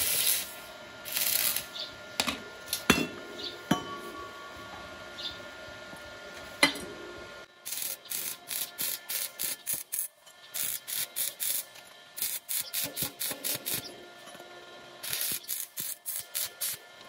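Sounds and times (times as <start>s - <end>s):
welding arc crackling: 0.0s - 1.8s, 7.6s - 14.0s, 15.0s - 16.9s.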